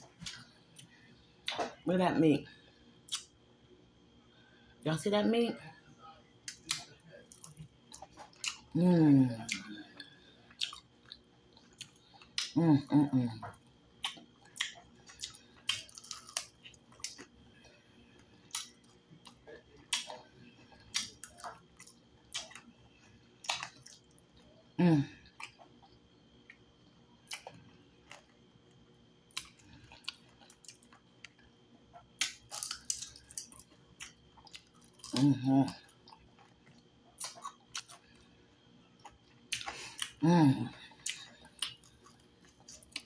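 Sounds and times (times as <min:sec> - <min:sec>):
wet chewing and lip smacks: 0:03.0 - 0:03.4, 0:06.5 - 0:08.7, 0:09.5 - 0:12.6, 0:13.4 - 0:22.7, 0:23.3 - 0:24.5, 0:25.3 - 0:26.7, 0:27.3 - 0:35.2, 0:35.9 - 0:38.4, 0:39.0 - 0:40.2, 0:40.9 - 0:43.0.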